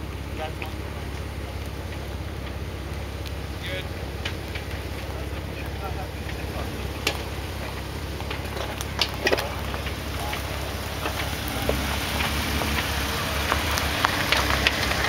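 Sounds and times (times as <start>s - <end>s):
car engine running low: 0.0s - 15.0s
twigs snapping under tyres: 0.0s - 15.0s.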